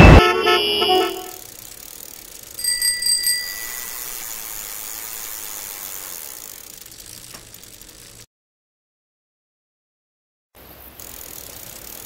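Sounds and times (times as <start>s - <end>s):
bicycle bell ringing: 2.5s - 5.0s.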